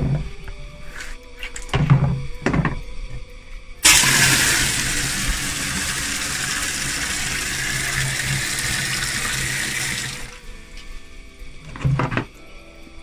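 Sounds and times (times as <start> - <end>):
faucet water gushing: 3.8 - 10.4.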